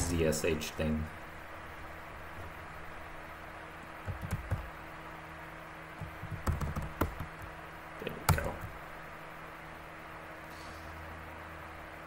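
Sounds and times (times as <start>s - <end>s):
faint low hum: 0.0s - 12.0s
keyboard key clicks: 4.1s - 4.7s, 6.0s - 7.5s.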